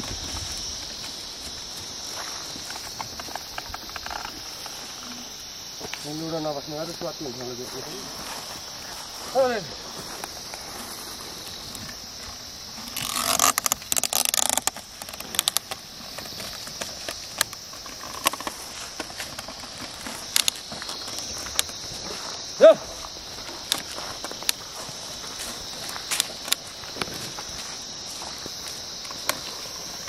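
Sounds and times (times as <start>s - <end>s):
insect buzz: 0.0s - 30.0s
wooden plough scraping soil: 8.1s - 22.2s.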